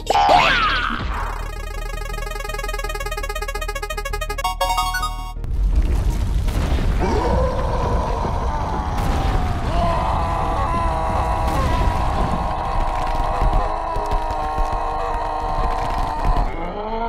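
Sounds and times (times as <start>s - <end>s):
ground rumbling and breaking: 5.4s - 16.5s.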